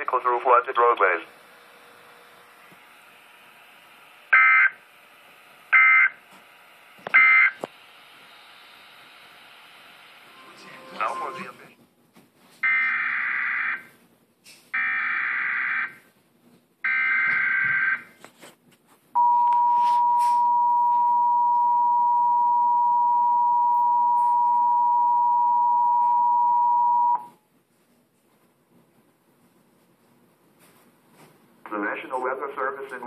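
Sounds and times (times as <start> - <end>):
two-tone attention signal: 19.2 - 27.3.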